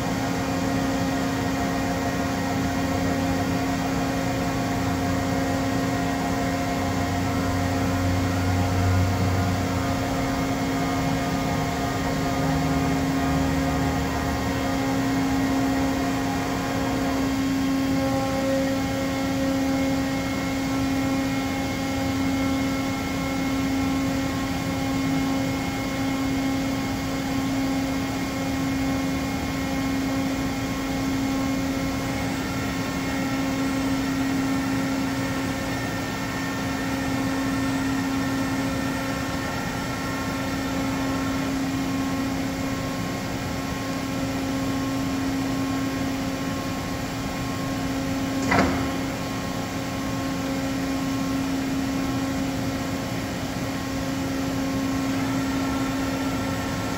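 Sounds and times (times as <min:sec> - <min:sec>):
milling machine hum: 0:00.0 - 0:56.9.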